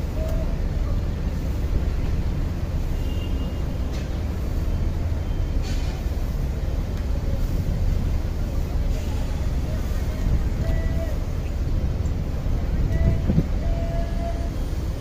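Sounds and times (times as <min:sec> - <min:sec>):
faint brief hisses: 0:05.5 - 0:06.3.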